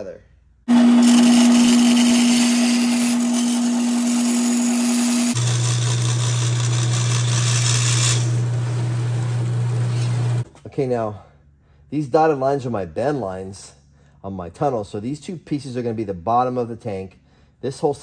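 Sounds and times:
power tool motor cutting metal: 0.7 - 10.4.

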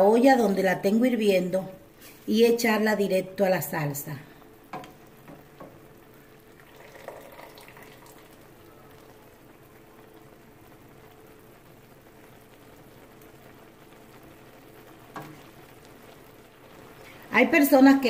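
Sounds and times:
sauce simmering and bubbling: 4.3 - 18.0.

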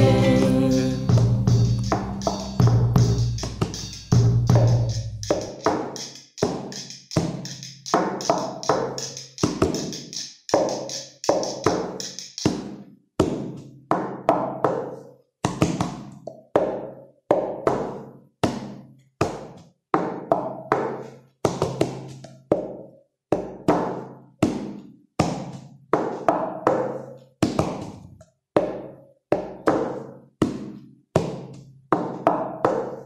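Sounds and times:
struck pitched percussion music: 0.0 - 12.7.

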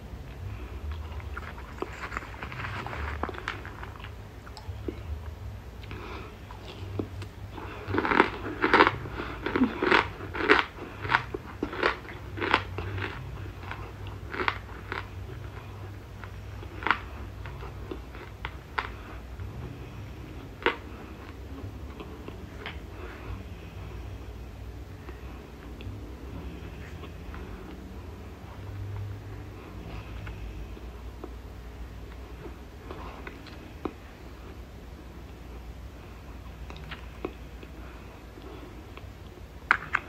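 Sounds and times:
crunchy chewing: 0.3 - 5.2, 5.8 - 24.3.

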